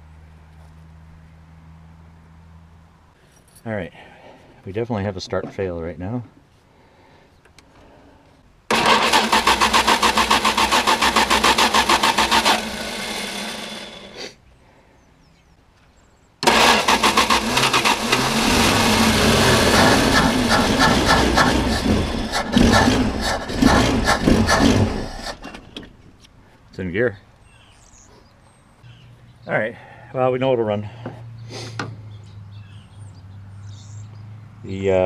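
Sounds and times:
engine cranking on starter: 8.7s - 14.2s, 16.4s - 25.9s
car engine running unevenly: 16.4s - 25.6s.

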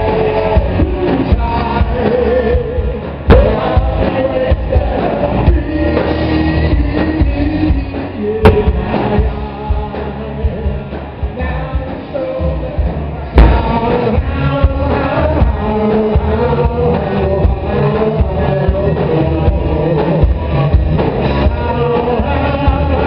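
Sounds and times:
live rock band playing: 0.0s - 23.0s
person singing: 0.0s - 23.0s
loud drum hits: 8.4s - 9.1s, 13.4s - 14.0s.

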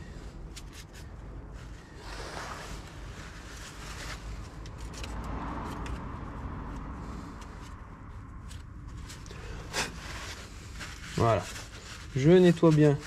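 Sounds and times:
low steady rumble: 0.0s - 13.0s
paper towel rubbing: 9.4s - 13.0s.

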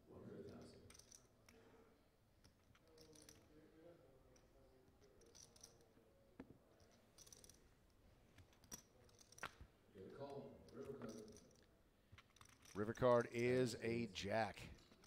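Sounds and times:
clay poker chips clicking: 5.0s - 5.8s, 10.7s - 13.5s, 14.7s - 15.0s.

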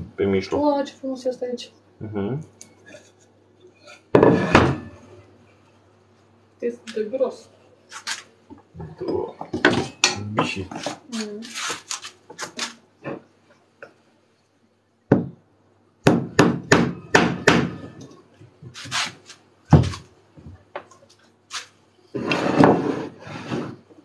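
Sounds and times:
hammer striking wooden board: 16.1s - 17.9s.

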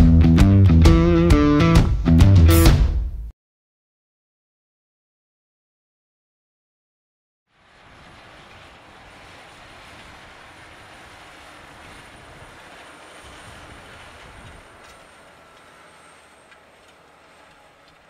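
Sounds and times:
tractor running: 7.5s - 18.0s
discs cutting dry soil: 7.6s - 18.0s.

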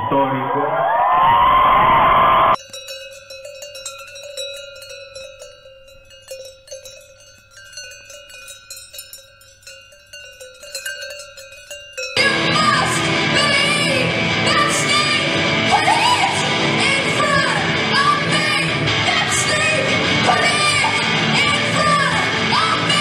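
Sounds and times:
chimes tinkling: 2.6s - 12.3s
rock music with singing: 12.2s - 23.0s.

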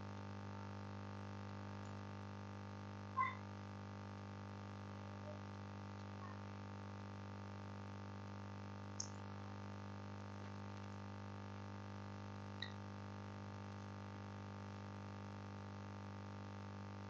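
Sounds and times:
electrical hum and buzz: 0.0s - 17.0s.

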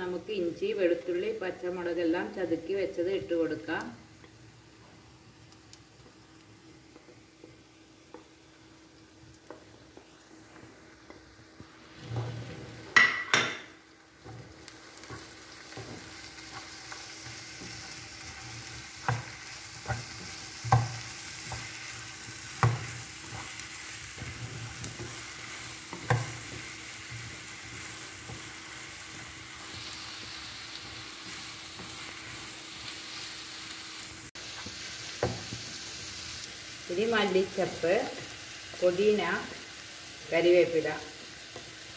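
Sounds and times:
onions sizzling in a pan: 0.0s - 41.9s
wooden spatula knocking a pan: 19.0s - 21.7s, 22.4s - 23.5s, 25.9s - 29.4s.

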